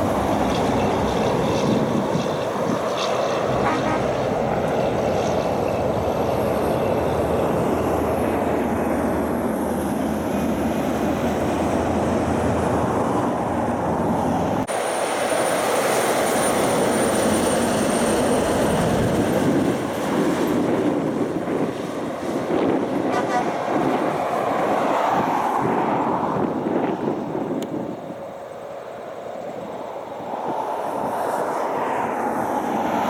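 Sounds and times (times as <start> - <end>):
truck approaching: 0.0 - 21.1
heavy trucks driving on highway: 0.0 - 33.0.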